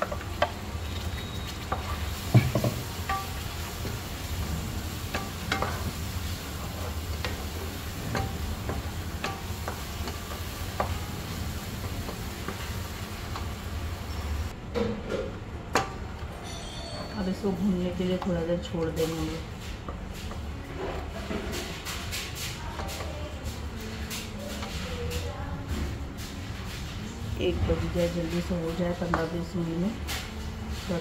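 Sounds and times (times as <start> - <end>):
paste sizzling: 0.0 - 14.5.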